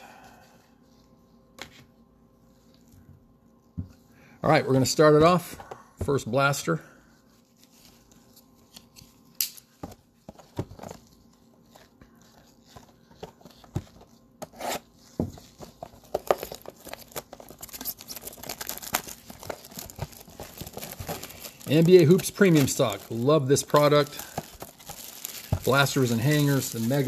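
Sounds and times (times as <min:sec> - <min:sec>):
plastic wrap crinkling: 0:15.0 - 0:27.0.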